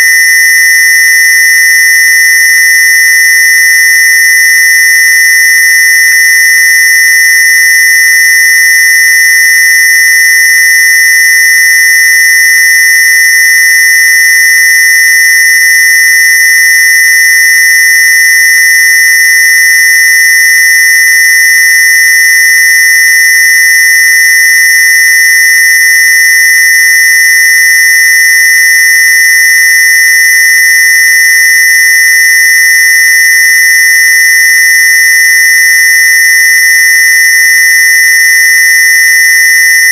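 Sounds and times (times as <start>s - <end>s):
high-pitched electronic buzz: 0.0s - 0.4s.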